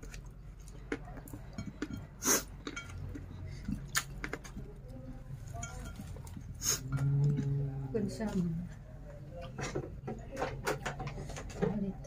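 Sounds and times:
fingers mixing food on a plate: 0.0 - 7.5.

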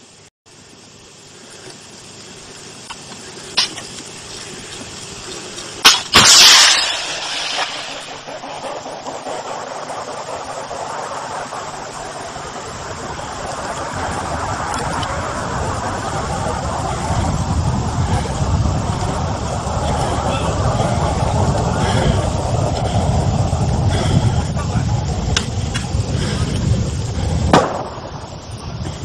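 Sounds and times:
steady rushing noise: 1.6 - 29.0
rocket motor blast and hiss: 1.9 - 29.0
sharp crack: 5.6 - 15.3, 27.5 - 28.4.

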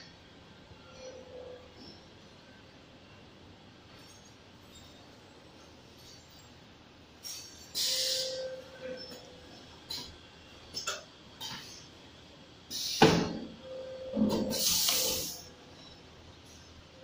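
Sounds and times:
air hiss: 7.2 - 8.4, 12.7 - 13.3, 14.5 - 15.4.

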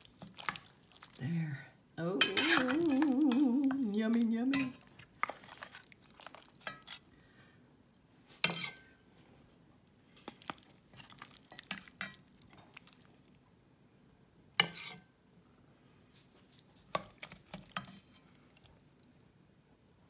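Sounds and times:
wet squelches of stew: 0.0 - 1.6, 2.4 - 7.4, 9.8 - 13.6, 16.1 - 19.3
metal spoon scraping pot: 2.2 - 5.8, 6.6 - 7.0, 8.4 - 8.8, 14.6 - 15.0.

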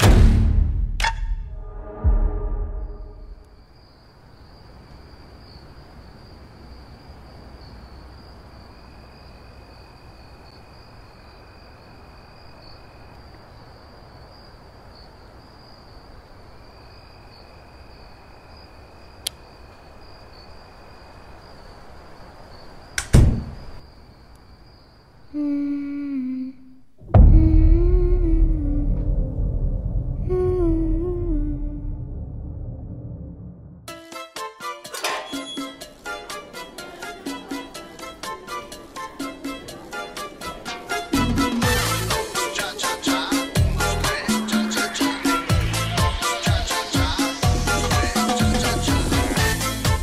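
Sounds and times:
loud bang: 0.0 - 3.4, 27.0 - 33.8
faint click: 19.2 - 19.4
low wavering drone: 27.2 - 33.8.

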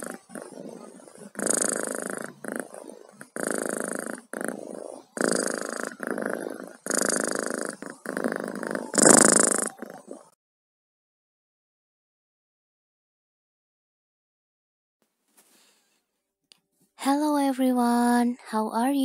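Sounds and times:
cat purring: 0.0 - 10.4.

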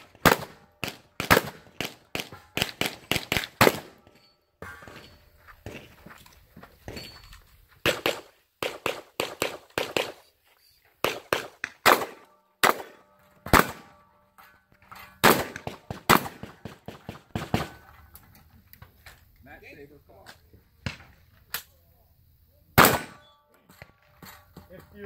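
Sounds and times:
rapid gunshots: 0.0 - 4.0, 7.8 - 10.2, 22.8 - 23.2.

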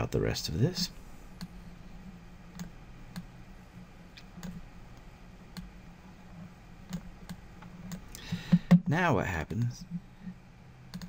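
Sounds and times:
low steady hum: 0.0 - 11.0
computer mouse clicking: 2.5 - 3.3, 4.2 - 5.7, 6.8 - 8.8.

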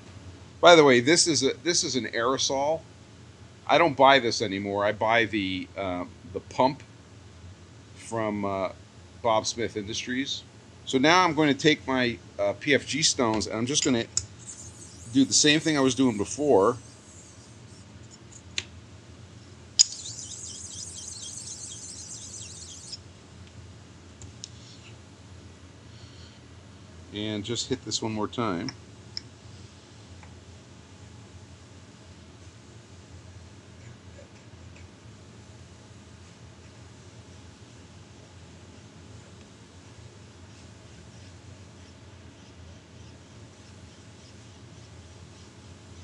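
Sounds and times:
steady low hum: 0.0 - 46.0
constant hiss: 8.0 - 18.6, 19.8 - 23.0, 27.1 - 30.3.

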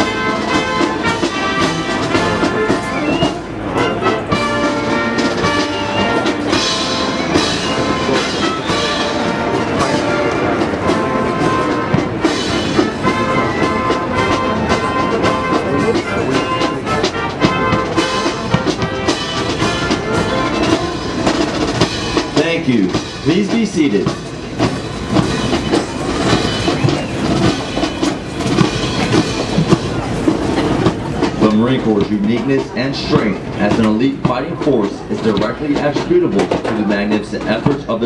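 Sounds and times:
brass band playing: 0.0 - 38.0
snare drum: 0.0 - 38.0.

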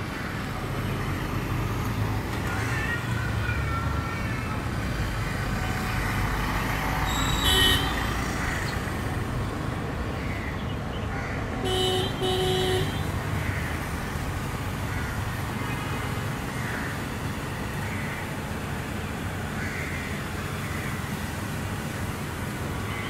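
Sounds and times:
traffic rumble: 0.0 - 23.0
vehicle horn honking: 7.1 - 8.2, 11.6 - 13.1.

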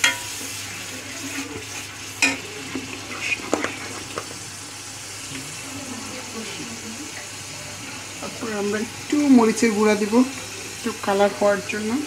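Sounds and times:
spoon clinking against pan: 0.0 - 0.4, 2.2 - 2.4
spoon stirring and scraping pan: 0.0 - 4.4
spices sizzling in oil: 0.0 - 12.0.

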